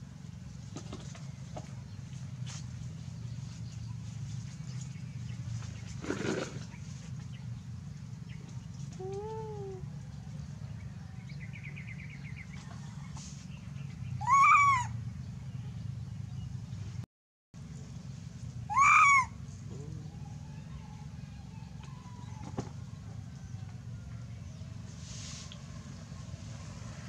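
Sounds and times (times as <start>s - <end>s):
steady low hum: 0.0s - 17.0s, 17.6s - 27.0s
animal calls rising and falling: 14.2s - 15.0s, 18.7s - 21.0s.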